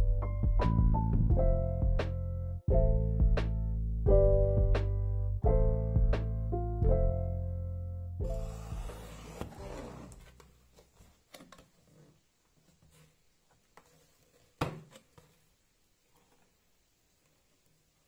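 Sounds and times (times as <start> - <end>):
background piano music: 0.0 - 10.1
cardboard sheets rustling: 8.4 - 16.6.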